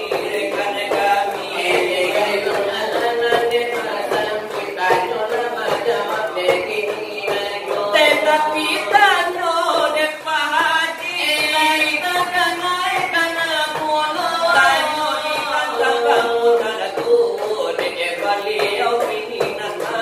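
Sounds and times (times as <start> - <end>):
voices chanting devotional melody: 0.0 - 20.0.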